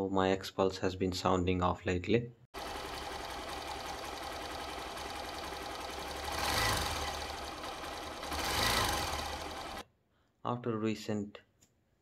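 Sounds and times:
motorcycle engine running: 0:02.6 - 0:09.8
valve-train noise: 0:02.6 - 0:09.8.

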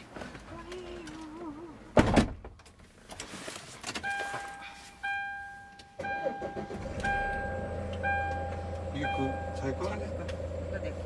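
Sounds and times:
van electronic warning chime: 0:04.0 - 0:10.2.

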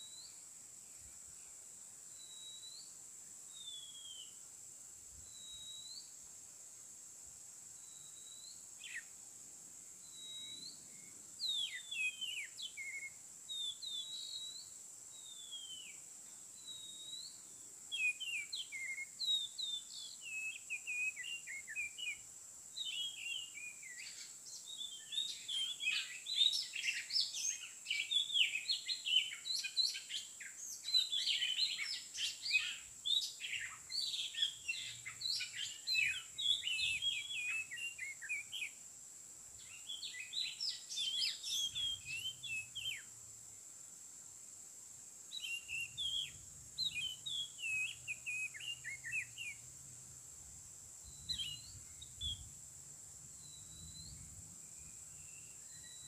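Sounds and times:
bird singing whistled phrases: 0:03.6 - 0:04.4, 0:05.3 - 0:06.1, 0:07.9 - 0:09.1, 0:10.1 - 0:16.0, 0:16.6 - 0:22.2, 0:22.8 - 0:38.8, 0:39.6 - 0:43.1, 0:45.3 - 0:49.6, 0:51.1 - 0:52.4, 0:53.4 - 0:54.2, 0:54.8 - 0:56.0.

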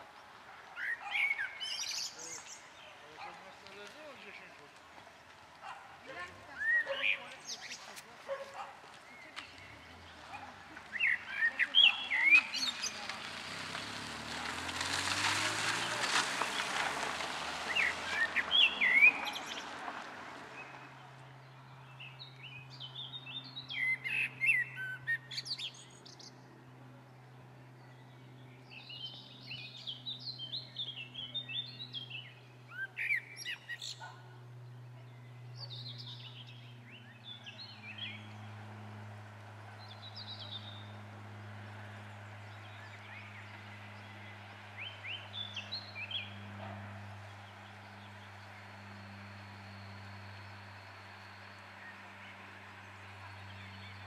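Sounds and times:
songbirds chirping: 0:00.0 - 0:54.0
steady low hum: 0:20.4 - 0:54.0.

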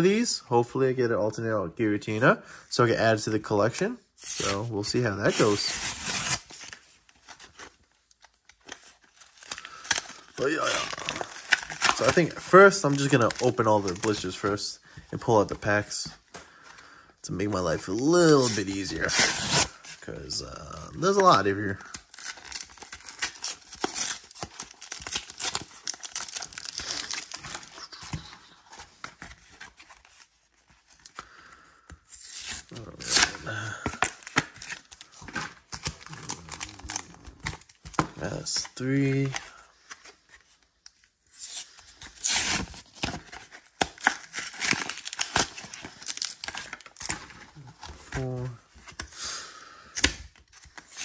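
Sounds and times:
packaging crinkling and tearing: 0:04.2 - 0:14.6, 0:17.9 - 0:19.9, 0:20.8 - 0:31.4, 0:32.1 - 0:40.2, 0:40.9 - 0:49.0
cardboard ripping: 0:05.3 - 0:06.7, 0:09.3 - 0:14.2, 0:18.2 - 0:19.9, 0:22.1 - 0:28.2, 0:41.2 - 0:47.3
plastic crinkling: 0:08.7 - 0:14.3, 0:22.0 - 0:28.3.

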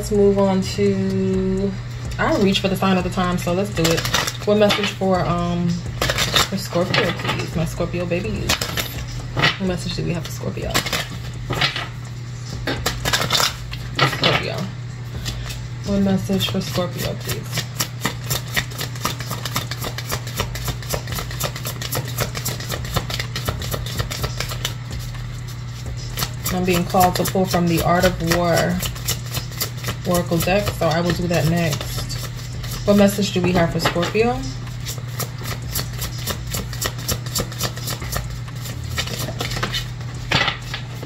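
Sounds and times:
low hum: 0:00.0 - 0:41.0
cards being shuffled: 0:05.9 - 0:07.5, 0:08.4 - 0:09.6, 0:12.6 - 0:14.4, 0:16.4 - 0:34.0, 0:34.6 - 0:41.0.

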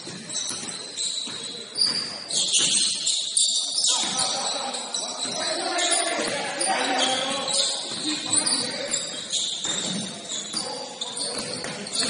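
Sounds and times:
basketball bouncing: 0:00.0 - 0:03.1, 0:07.4 - 0:10.6, 0:11.2 - 0:12.0
sneakers squeaking on hardwood: 0:00.0 - 0:12.0
players' voices: 0:00.3 - 0:12.0.

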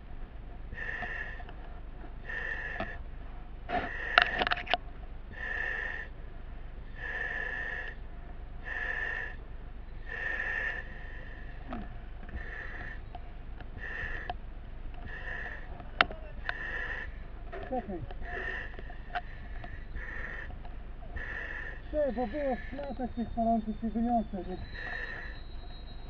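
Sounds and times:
breathing mask regulator hissing: 0:24.6 - 0:25.4.

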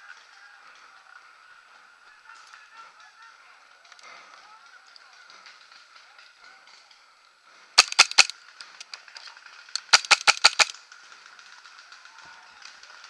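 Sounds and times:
paintball marker firing: 0:07.8 - 0:09.1, 0:09.7 - 0:10.8.

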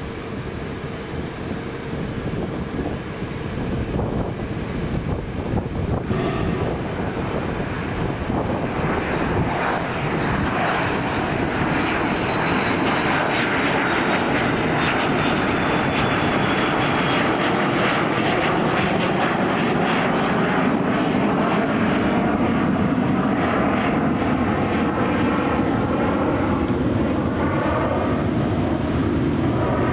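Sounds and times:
jet engines roaring overhead: 0:00.0 - 0:29.9.

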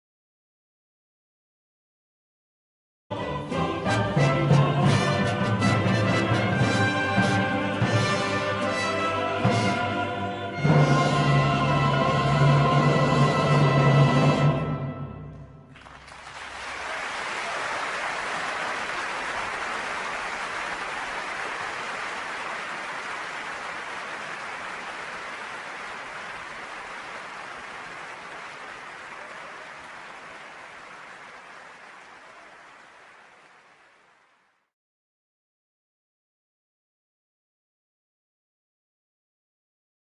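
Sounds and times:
audience applause: 0:15.7 - 0:34.7.

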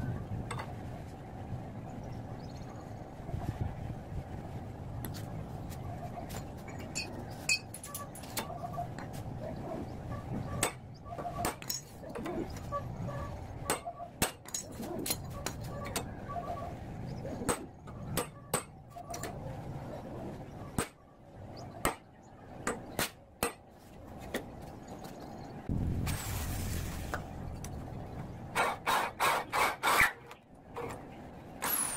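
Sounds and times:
metal tools clinking on metal: 0:06.3 - 0:08.6, 0:11.6 - 0:12.7, 0:13.8 - 0:16.1.

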